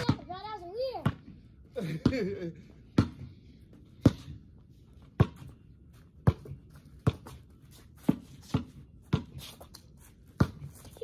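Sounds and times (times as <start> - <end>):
basketball bouncing: 0.0 - 1.3, 1.9 - 3.4, 4.0 - 4.4, 5.0 - 9.4, 10.3 - 11.0.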